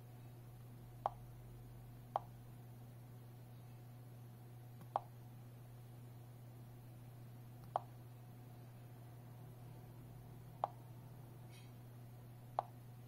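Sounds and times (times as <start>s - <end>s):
faint steady hum: 0.0s - 13.0s
finger tapping touchscreen: 4.8s - 5.1s, 7.6s - 7.9s, 10.6s - 10.8s.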